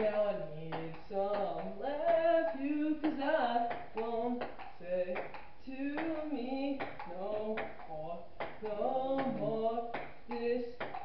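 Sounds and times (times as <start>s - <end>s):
pop song with singing: 0.0s - 11.0s.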